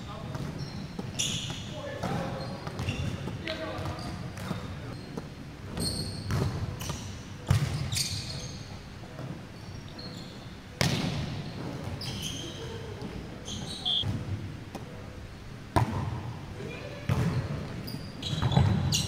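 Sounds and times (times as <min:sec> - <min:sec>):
sneaker squeaks on floor: 0:00.3 - 0:08.8, 0:09.6 - 0:10.6, 0:11.4 - 0:12.6, 0:13.4 - 0:14.1, 0:17.2 - 0:19.0.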